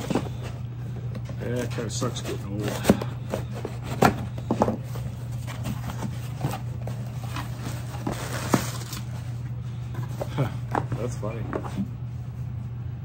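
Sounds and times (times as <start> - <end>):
steady low hum: 0.0 - 13.0
cardboard rustle: 1.4 - 9.4.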